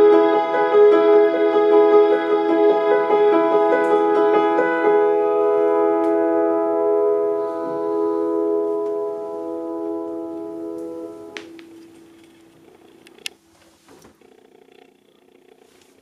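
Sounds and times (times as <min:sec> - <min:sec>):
piano and keyboard chord: 0:00.0 - 0:12.6.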